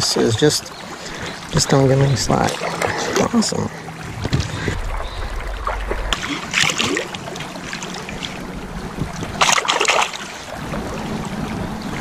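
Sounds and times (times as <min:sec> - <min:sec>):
stream running: 0:00.0 - 0:12.0
water splashing around net: 0:04.5 - 0:08.5, 0:09.4 - 0:10.4.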